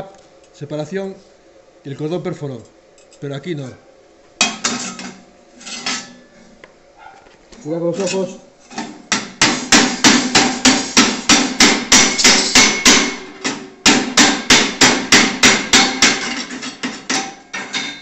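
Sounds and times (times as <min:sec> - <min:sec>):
hammer striking steel plate: 0:09.1 - 0:18.0.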